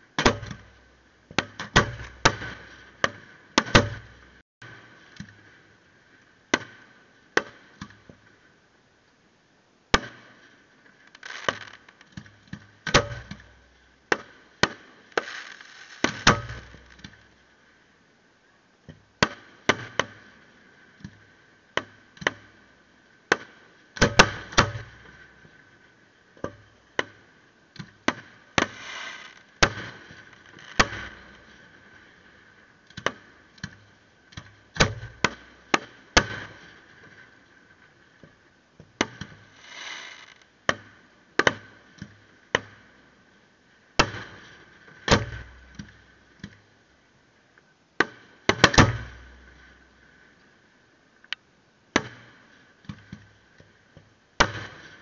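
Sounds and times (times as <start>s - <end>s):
fireworks bursting with bangs: 1.4s - 5.2s, 10.0s - 12.1s, 12.9s - 17.3s, 23.3s - 25.2s, 28.0s - 32.4s, 34.7s - 37.2s, 39.0s - 40.4s, 44.0s - 45.7s, 54.4s - 55.0s.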